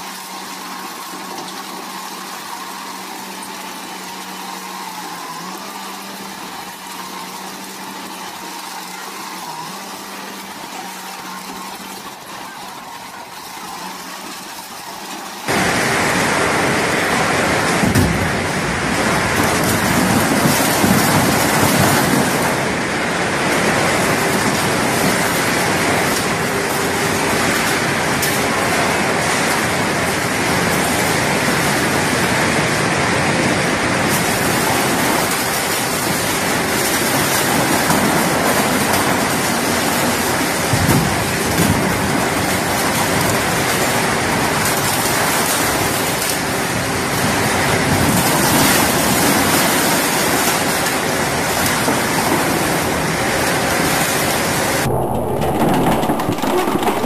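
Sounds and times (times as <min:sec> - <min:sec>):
crusher machine grinding: 0:00.0 - 0:57.0
machine hum: 0:00.0 - 0:57.0
sharp cracks: 0:54.8 - 0:57.0.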